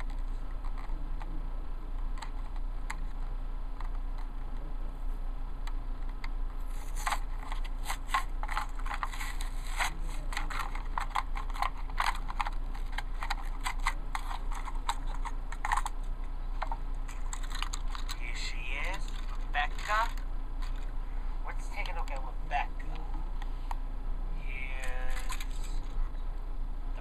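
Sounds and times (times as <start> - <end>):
low electrical hum: 0.0 - 27.0
packaging crinkling and clicking: 6.0 - 18.2, 18.9 - 21.0, 25.1 - 26.0.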